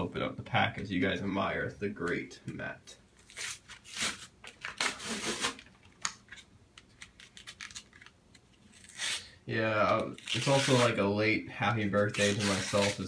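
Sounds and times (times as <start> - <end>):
packaging tearing and rustling: 3.2 - 9.3, 10.0 - 11.0, 12.0 - 13.0
faint crinkles and clicks: 5.6 - 8.8.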